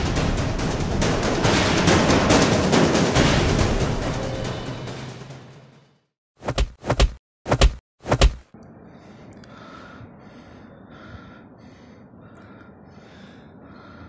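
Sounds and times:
heavy thuds of blows: 0:06.4 - 0:08.5
man panting: 0:08.8 - 0:14.0.

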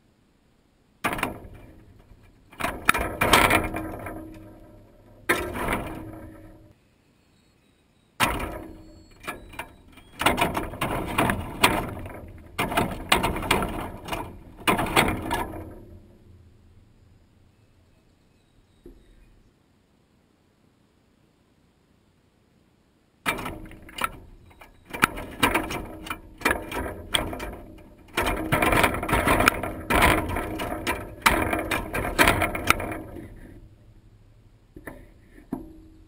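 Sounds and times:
wire-mesh feeder rattling: 0:01.0 - 0:06.7, 0:08.2 - 0:16.9, 0:23.3 - 0:36.0.

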